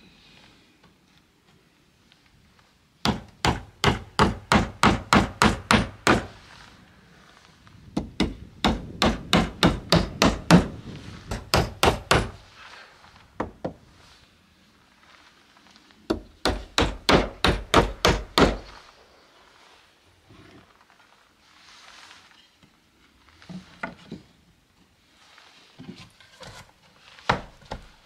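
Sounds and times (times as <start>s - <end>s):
hammer striking nails into wood: 3.0s - 6.4s, 8.0s - 12.4s, 16.1s - 18.7s.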